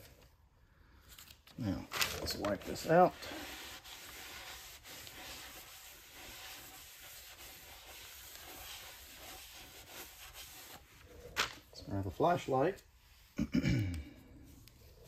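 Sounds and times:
rag rubbing inside metal cylinder: 0:03.2 - 0:10.9.

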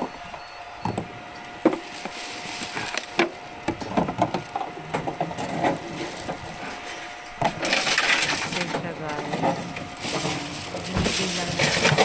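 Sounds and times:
plastic bottle rattling in machine: 0:07.4 - 0:12.0.

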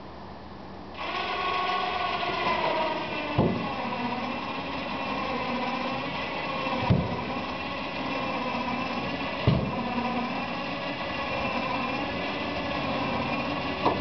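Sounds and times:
winch motor running: 0:01.0 - 0:14.0
knocks: 0:03.4 - 0:03.7, 0:06.8 - 0:07.2.

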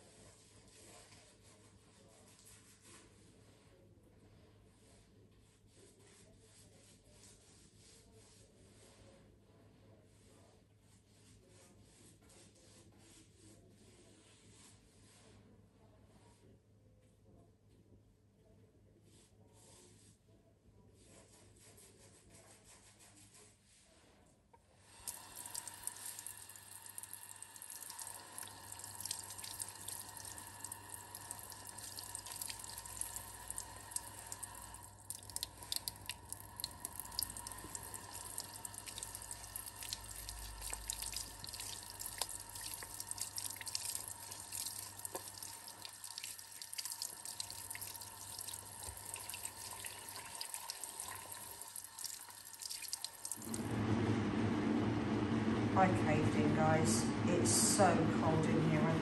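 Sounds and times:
tap water running into sink: 0:25.0 - 0:53.6
water drips and splashes: 0:25.0 - 0:53.6.

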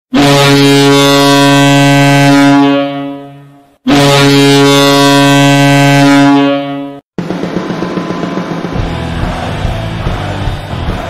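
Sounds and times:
deep air horn blasts: 0:00.1 - 0:07.0.

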